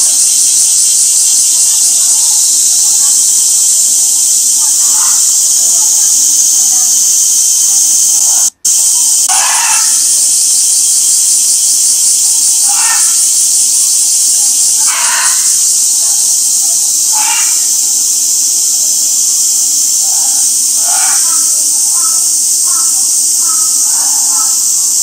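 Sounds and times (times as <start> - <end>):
cicada chorus: 0.0 - 25.0.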